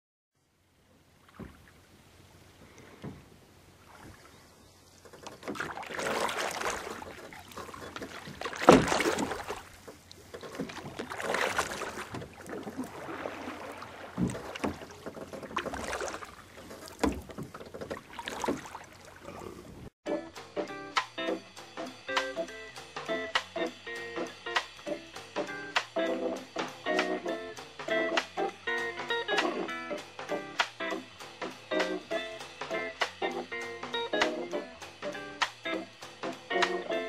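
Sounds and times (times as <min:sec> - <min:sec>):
small waves lapping on stones: 0:05.5 - 0:19.8.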